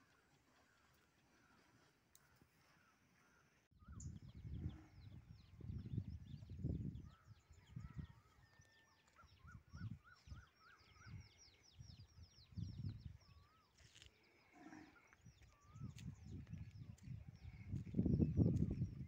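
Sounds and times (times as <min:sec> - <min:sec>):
footsteps on dry ground: 0:00.0 - 0:02.9, 0:08.3 - 0:09.4, 0:13.5 - 0:14.4, 0:15.1 - 0:19.0
birds chirping: 0:00.0 - 0:19.0.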